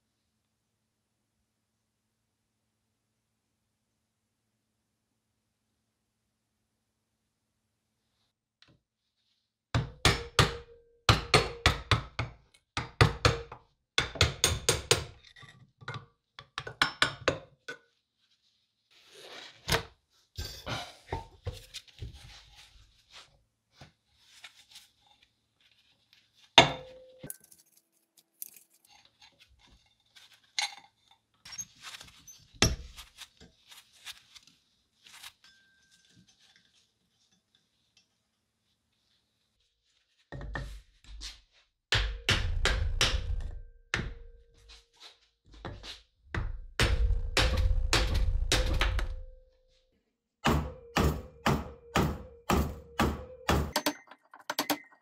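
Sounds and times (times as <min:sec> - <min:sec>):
clinks and clicks of metal parts: 0:26.8 - 0:29.4, 0:53.7 - 0:55.0.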